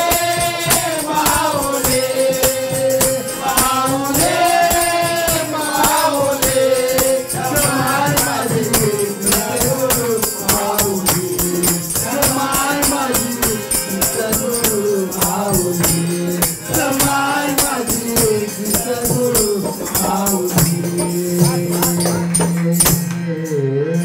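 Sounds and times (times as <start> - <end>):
group singing in unison: 0.0 - 22.7
barrel drum beat: 0.0 - 23.1
tambourine jingles: 0.0 - 23.2
hand-clapping: 21.8 - 23.2.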